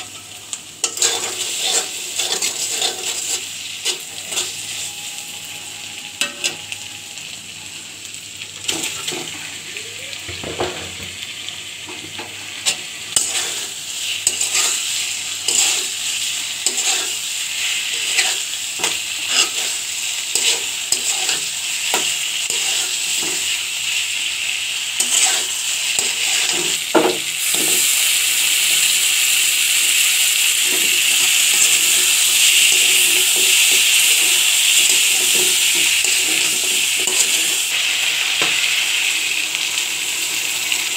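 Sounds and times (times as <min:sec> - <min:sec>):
food sizzling in oil: 0:00.0 - 0:40.9
metal spatula scraping pan: 0:00.8 - 0:07.1, 0:12.6 - 0:23.6, 0:25.0 - 0:26.8, 0:30.7 - 0:37.9.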